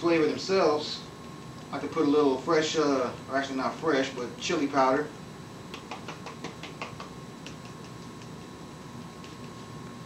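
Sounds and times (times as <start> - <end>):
spice shaker clicks and taps: 5.7 - 9.6.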